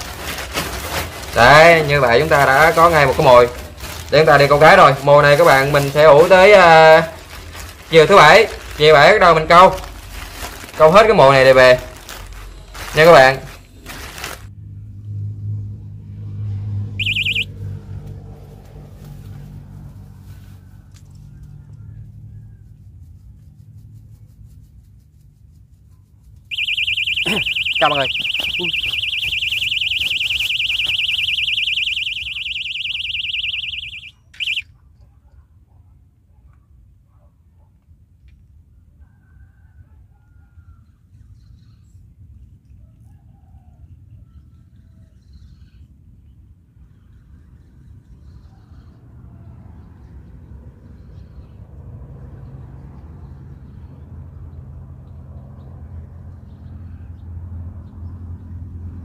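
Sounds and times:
bite alarm warbling tone: 17.0s - 17.5s, 26.5s - 34.6s
short electronic chirp: 17.0s - 17.5s, 26.5s - 34.6s.

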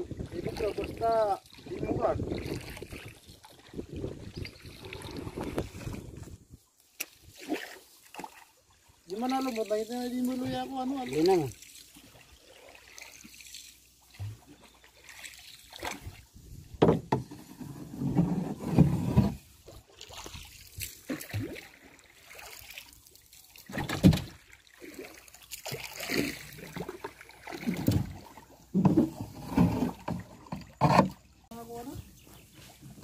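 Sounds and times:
paddle splashing in water: 0.0s - 33.0s
paddle knocking against hull: 16.7s - 19.4s, 23.7s - 24.4s, 26.1s - 31.3s.

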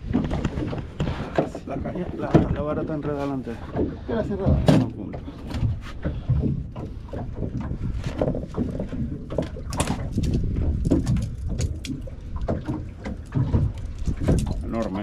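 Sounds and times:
wind and water rumble: 0.0s - 15.0s.

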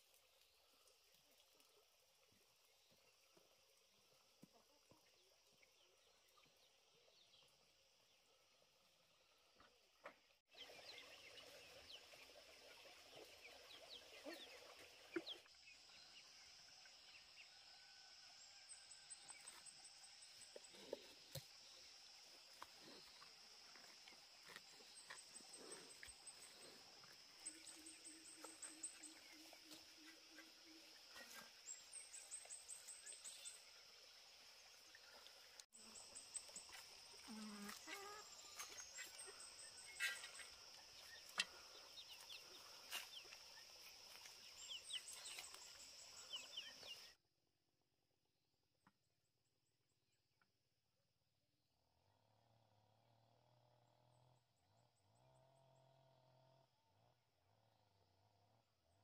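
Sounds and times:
high insect hum: 15.7s - 47.1s.

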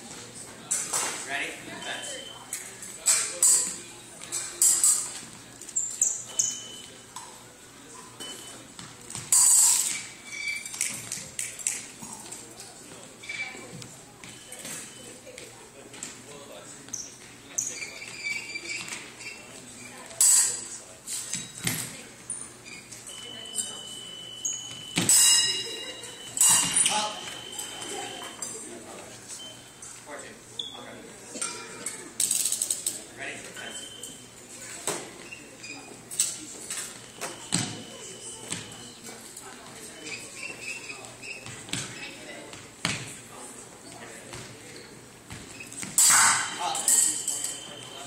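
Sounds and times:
fencing blades clinking: 2.0s - 7.3s, 9.3s - 12.4s, 23.2s - 28.6s, 31.4s - 33.0s, 45.7s - 48.0s
shoes squeaking on wooden floor: 16.8s - 20.2s, 37.0s - 43.2s, 43.8s - 46.0s.

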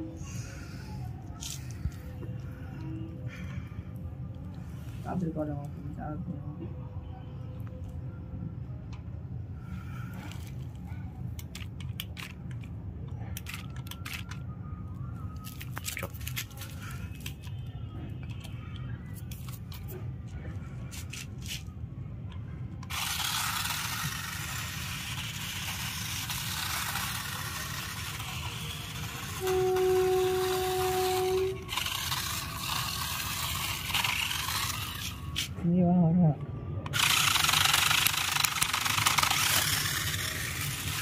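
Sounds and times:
toy handling clicks and scrapes: 10.1s - 14.5s, 15.3s - 20.2s, 20.9s - 35.6s, 36.8s - 41.0s
toy truck motor hissing: 22.8s - 35.6s, 36.9s - 41.0s
loud horn-like tone: 29.2s - 31.7s.

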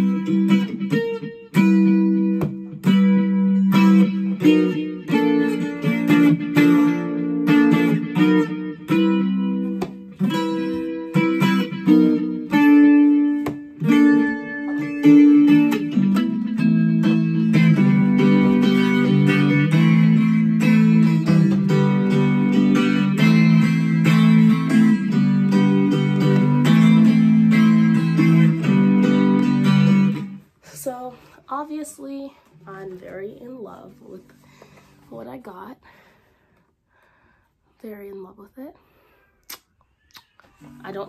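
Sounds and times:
ukulele chords strummed: 0.0s - 30.4s
ukulele plucked notes: 0.0s - 30.4s.

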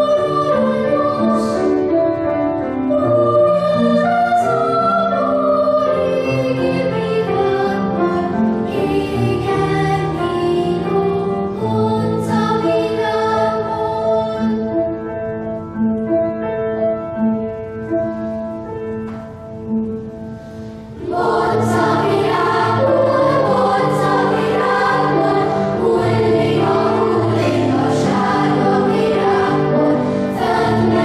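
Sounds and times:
children's choir singing: 0.0s - 15.0s, 20.9s - 31.0s
piano accompaniment: 0.0s - 31.0s.

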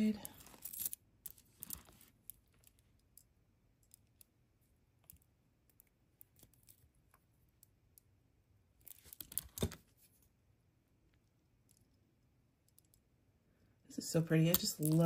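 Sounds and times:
rustling: 0.1s - 2.8s.

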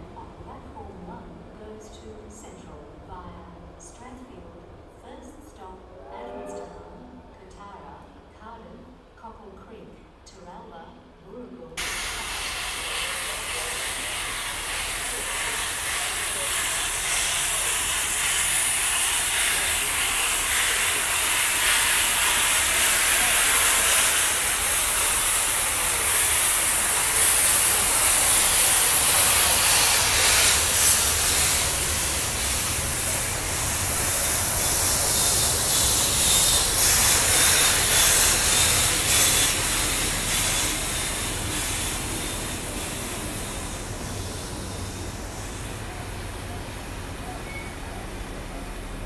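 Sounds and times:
carriages rumbling on rails: 11.8s - 49.0s
steam hissing from locomotive: 11.8s - 49.0s.

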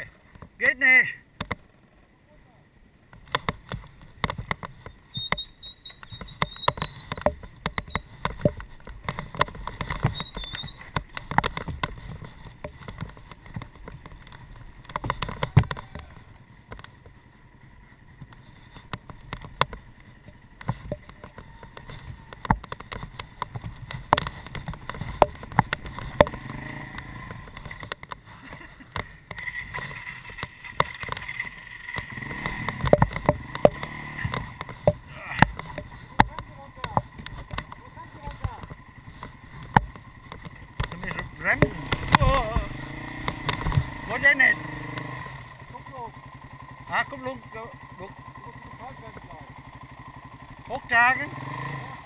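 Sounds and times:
dirt bike engine rumble: 0.0s - 52.0s
bike knocks and clatter: 3.1s - 17.2s, 18.1s - 44.1s
high chirping call: 4.9s - 8.1s, 10.1s - 11.2s, 35.8s - 36.3s.

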